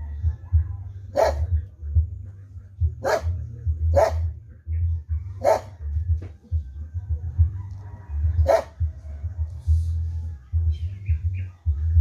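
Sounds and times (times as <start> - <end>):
low steady rumble: 0.0 - 12.0
dog barking: 1.1 - 1.6, 2.9 - 4.4, 5.2 - 5.9, 7.9 - 9.0.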